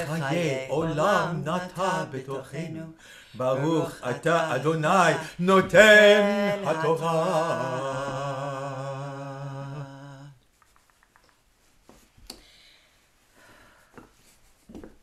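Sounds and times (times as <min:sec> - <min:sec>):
fabric rustling: 0:10.5 - 0:12.3.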